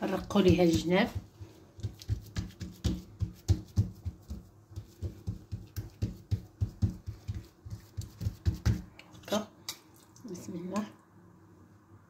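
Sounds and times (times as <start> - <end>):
palms slapping dough: 0.0 - 9.9.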